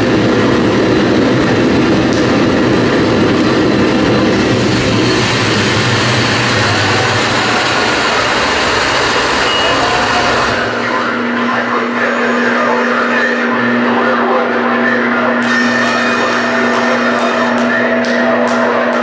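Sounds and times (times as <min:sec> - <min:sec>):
low rumble: 0:00.0 - 0:11.8
distorted electronic noise: 0:00.0 - 0:19.0.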